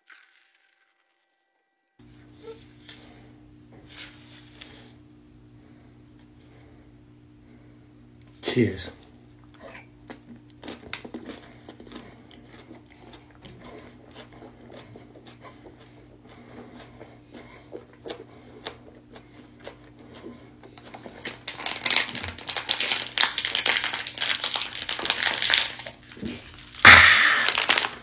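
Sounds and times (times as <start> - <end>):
mouth chewing crunchy food: 8.2 - 28.0
plastic bottle crackling: 21.2 - 28.0.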